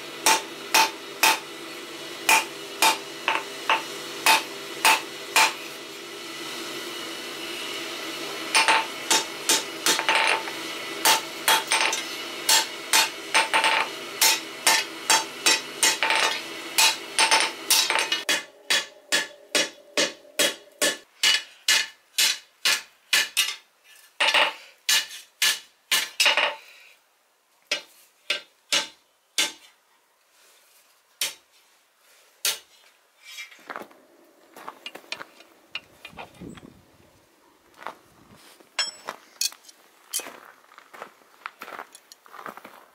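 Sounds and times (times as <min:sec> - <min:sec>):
steady hum: 0:00.0 - 0:21.0
hammer striking metal on anvil: 0:00.2 - 0:01.5, 0:02.2 - 0:05.6, 0:08.5 - 0:23.6, 0:27.7 - 0:29.6, 0:38.8 - 0:39.2.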